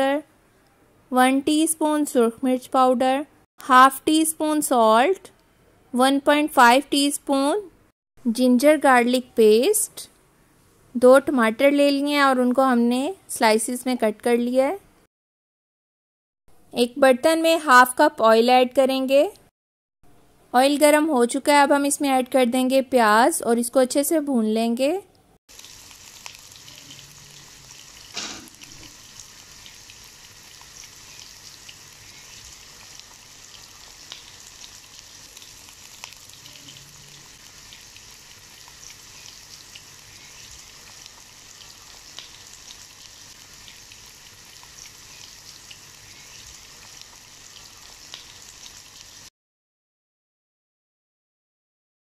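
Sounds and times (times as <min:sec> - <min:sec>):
onions sizzling in hot oil: 0:25.5 - 0:49.3
sharp knock: 0:28.2 - 0:28.6.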